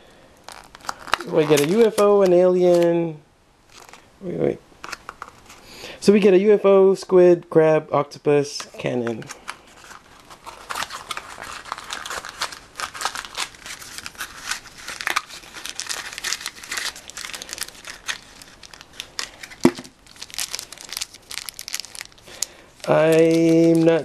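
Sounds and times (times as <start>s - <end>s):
plastic wrapping crinkling and tearing: 0.4s - 2.9s, 3.7s - 4.1s, 4.8s - 5.6s, 8.8s - 24.0s.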